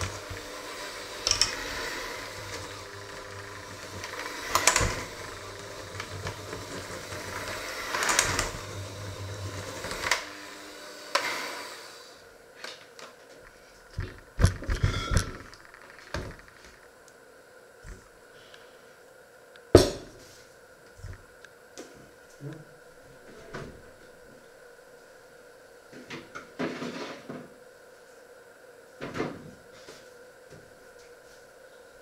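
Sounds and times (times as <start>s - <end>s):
electric hand mixer running: 0.0s - 12.3s.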